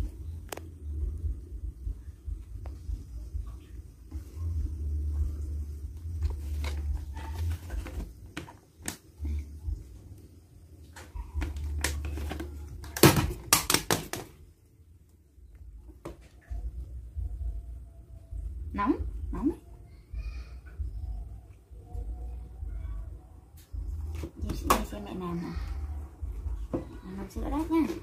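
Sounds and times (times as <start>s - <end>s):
plastic jar being handled: 6.2s - 9.4s.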